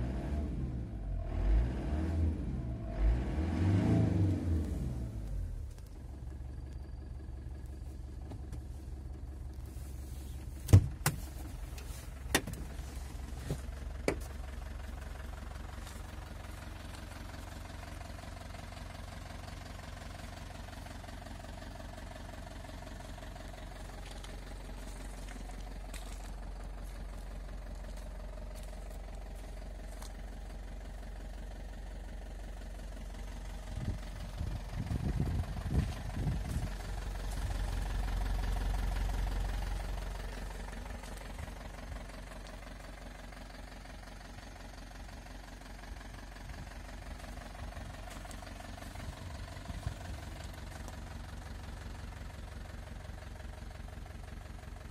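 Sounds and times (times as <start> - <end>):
diesel engine idling: 0.0 - 54.9
footsteps on gravel: 15.8 - 17.5, 23.7 - 30.6, 35.4 - 37.8, 39.7 - 43.0, 47.2 - 51.1.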